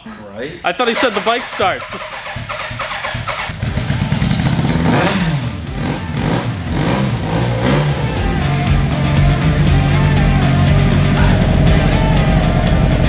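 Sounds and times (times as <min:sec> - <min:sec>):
motorcycle engine starting and revving: 0:00.9 - 0:13.0.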